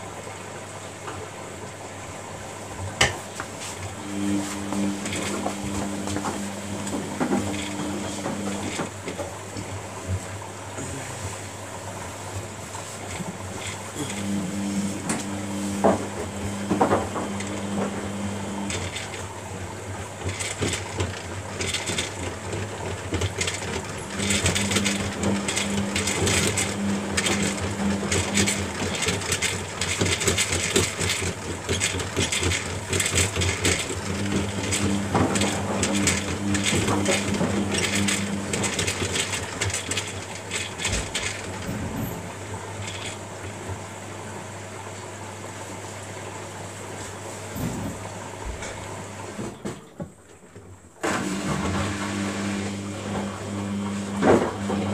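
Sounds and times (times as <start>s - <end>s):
washing machine hum: 0.0s - 54.9s
motor whine: 4.0s - 9.0s, 13.9s - 43.3s.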